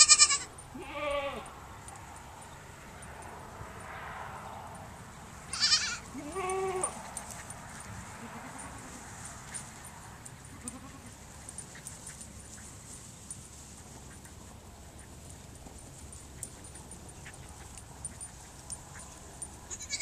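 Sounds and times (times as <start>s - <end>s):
goat kids bleating: 0.0s - 1.6s, 5.5s - 7.4s, 8.1s - 9.2s, 10.4s - 11.2s, 19.7s - 20.0s.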